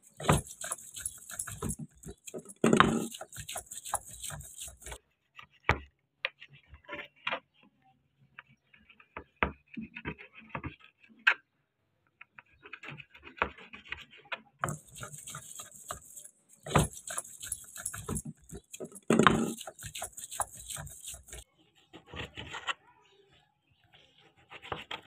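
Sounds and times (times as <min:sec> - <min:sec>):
grinding stone scraping and knocking: 0:00.0 - 0:05.0, 0:14.6 - 0:21.5.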